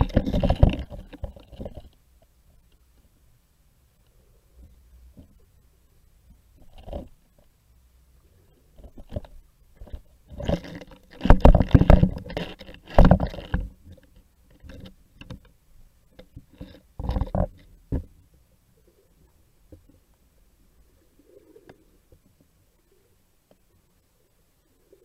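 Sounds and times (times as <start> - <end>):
muffled underwater knocks and scrapes: 0.0 - 2.0, 6.6 - 7.2, 8.8 - 15.5, 16.2 - 18.2.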